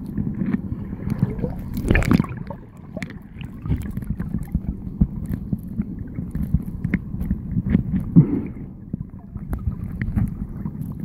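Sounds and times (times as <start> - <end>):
muffled underwater water sloshing: 0.0 - 11.0
underwater knocks and clicks: 0.0 - 11.0
rush of water: 0.6 - 5.3.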